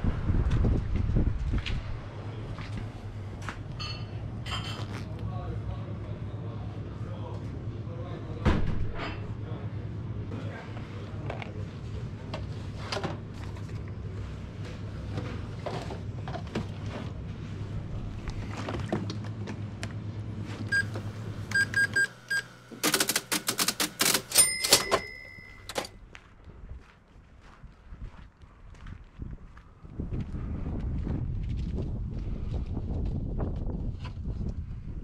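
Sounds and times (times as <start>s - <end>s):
steady low hum: 0.0s - 35.0s
receipt printer clattering: 20.8s - 25.9s.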